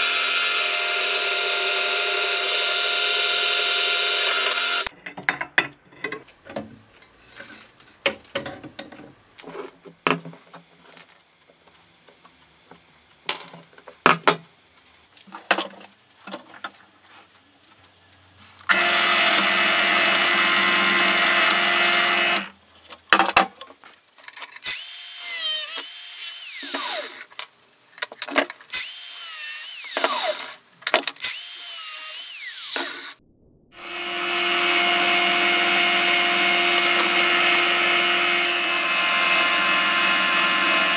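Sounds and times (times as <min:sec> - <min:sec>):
clicks and knocks of workpiece: 0:04.9 - 0:06.8, 0:08.0 - 0:09.2, 0:23.1 - 0:24.6
drill press drilling metal: 0:18.7 - 0:22.5, 0:33.8 - 0:40.9.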